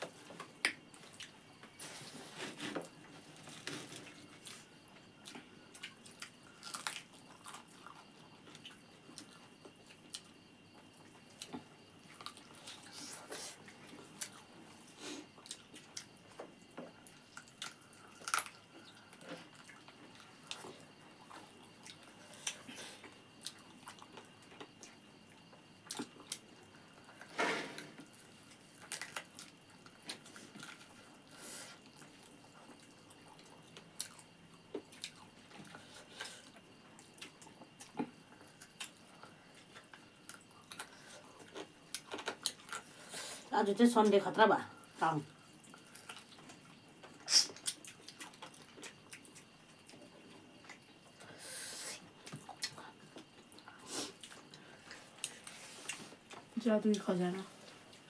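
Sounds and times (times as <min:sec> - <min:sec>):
wet chewing: 0:45.4 - 0:50.9, 0:52.1 - 0:56.5.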